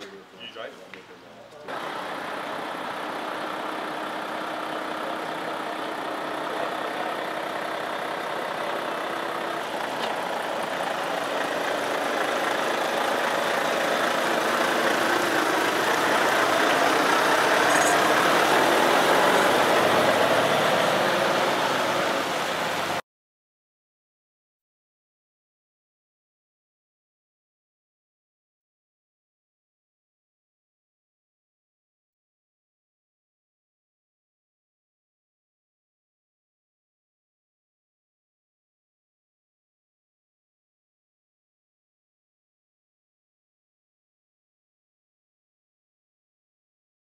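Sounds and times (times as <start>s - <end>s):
diesel lorry engine driving past: 1.7s - 23.0s.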